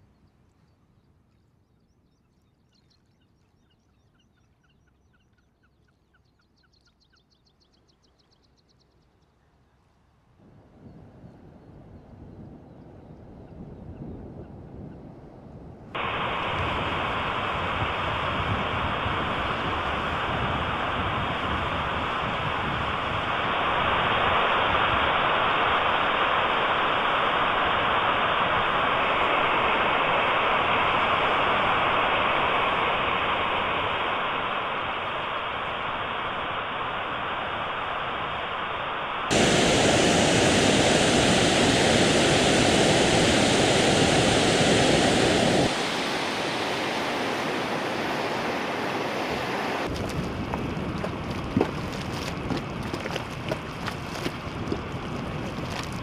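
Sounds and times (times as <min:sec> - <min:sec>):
outdoor rushing noise: 0:16.0 - 0:51.8.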